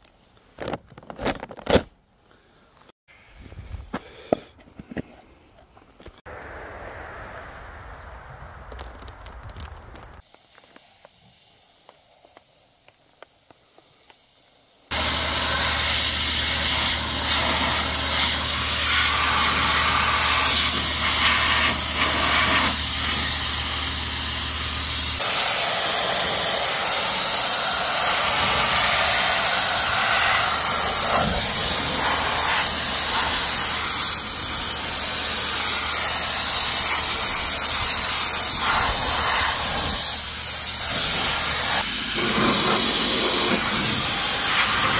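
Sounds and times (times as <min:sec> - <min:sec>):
low hum: 0:06.3 - 0:10.2
sandblaster hissing: 0:10.2 - 0:44.9.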